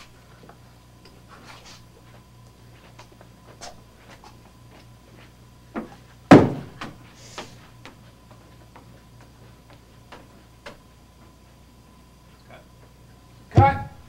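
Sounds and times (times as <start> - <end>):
heavy thump: 6.3 - 7.0.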